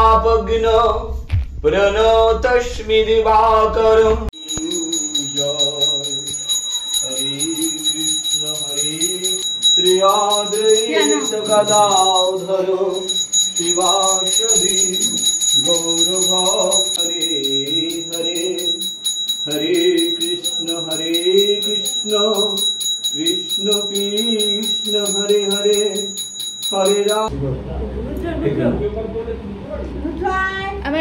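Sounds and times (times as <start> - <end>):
hand bell jingling: 4.4 - 27.3.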